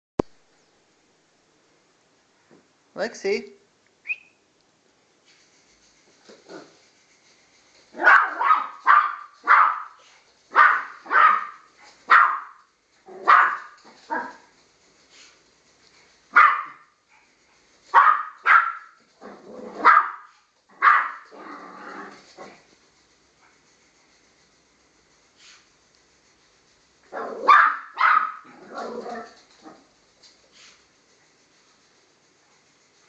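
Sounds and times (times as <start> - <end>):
small dog yapping: 7.9 - 14.5, 16.3 - 16.9, 17.9 - 22.7, 27.1 - 29.9.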